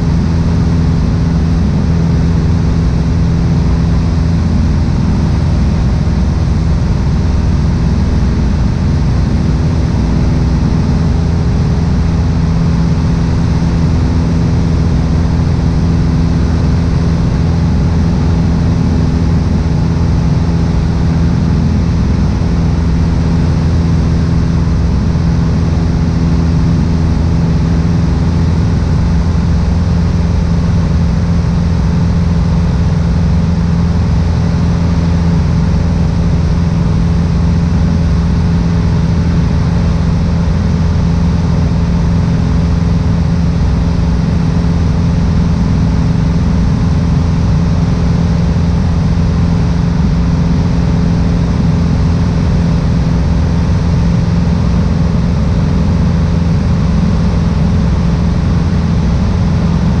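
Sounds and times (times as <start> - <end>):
airplane engine and propeller drone: 0.0 - 60.0.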